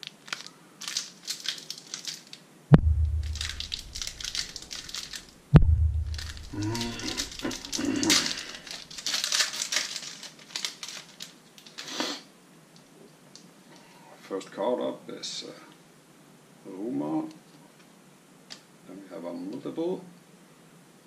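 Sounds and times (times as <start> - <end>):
foil wrapper tearing and crinkling: 0.0 - 2.4, 3.2 - 5.3, 6.1 - 12.0
sharp thumps: 2.7 - 7.4.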